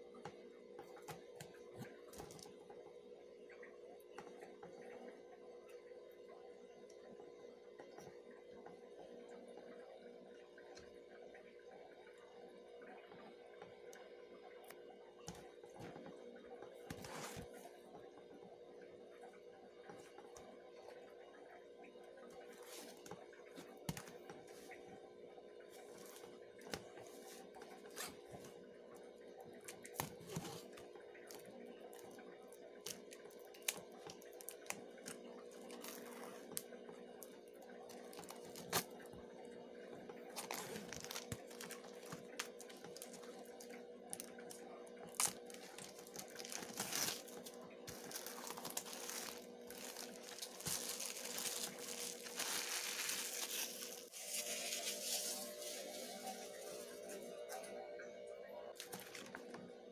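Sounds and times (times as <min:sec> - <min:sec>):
plastic crinkling: 0:29.6 - 0:39.0, 0:40.2 - 0:57.2, 0:58.8 - 0:59.5
plastic shrink wrap tearing: 0:32.8 - 0:36.6, 0:37.9 - 0:38.9, 0:40.3 - 0:57.0.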